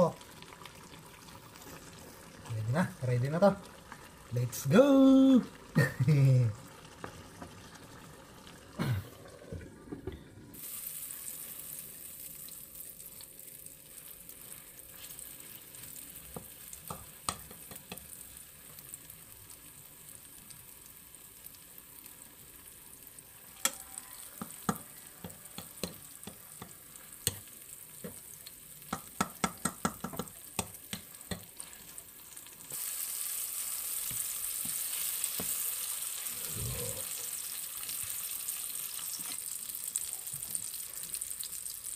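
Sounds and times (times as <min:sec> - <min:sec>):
omelette sizzling in oil: 0:00.0 - 0:09.9, 0:10.5 - 0:41.9
utensil clicks and taps: 0:28.9 - 0:31.5.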